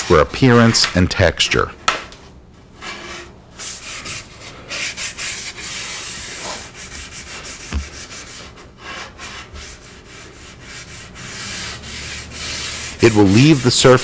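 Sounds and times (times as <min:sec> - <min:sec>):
scrub pad rubbing on wood: 0:03.6 - 0:14.0
knock against wood: 0:07.7 - 0:07.9.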